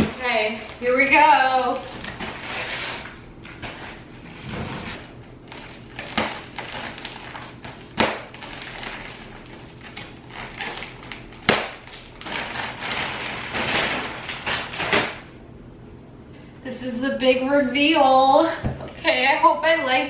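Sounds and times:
plastic wrapping crinkling: 0.0 - 15.2.

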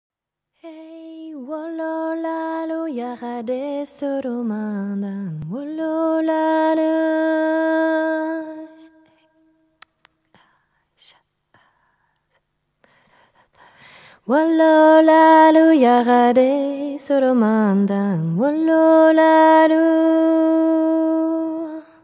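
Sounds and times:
woman singing chant-like melody: 0.6 - 9.2, 14.2 - 22.0.

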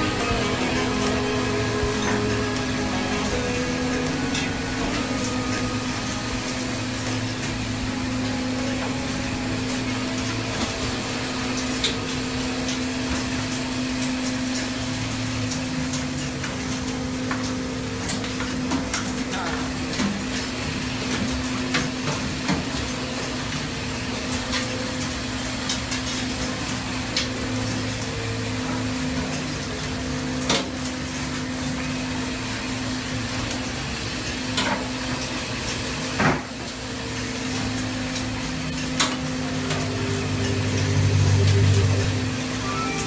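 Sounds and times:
deeper hum: 0.0 - 18.0, 37.5 - 43.0
deck machinery humming: 0.0 - 22.1, 36.8 - 43.0.

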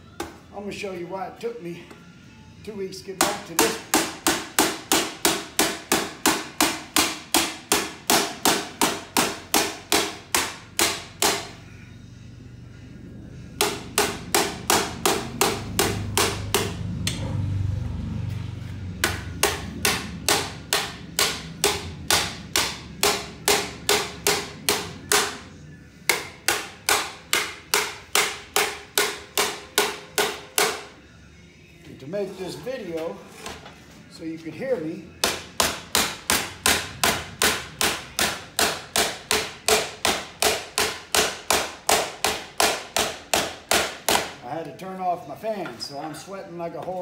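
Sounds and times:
hammer on sheet metal: 3.2 - 11.6, 13.6 - 17.3, 19.0 - 25.5, 26.1 - 30.9, 35.2 - 44.4.

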